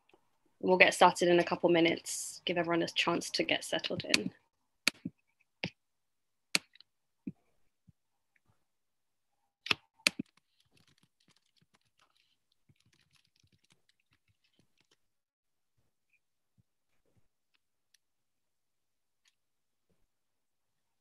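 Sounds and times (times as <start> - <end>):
computer keyboard typing: 9.7 - 15.0.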